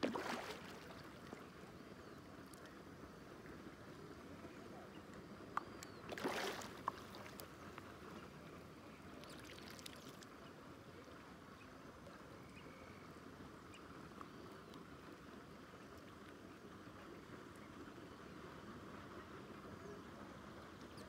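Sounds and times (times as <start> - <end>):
fish splashing: 0.0 - 1.0, 6.1 - 7.3
quiet outdoor background: 0.0 - 21.0.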